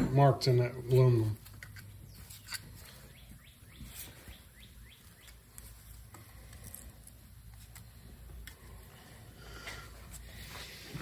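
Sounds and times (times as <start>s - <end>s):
small bird chirping: 1.9s - 5.8s.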